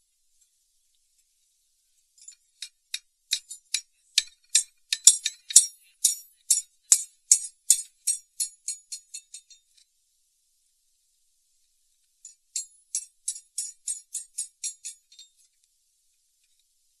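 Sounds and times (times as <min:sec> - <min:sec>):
small hammer tapping steel band: 0:02.2 - 0:09.8, 0:12.2 - 0:15.6.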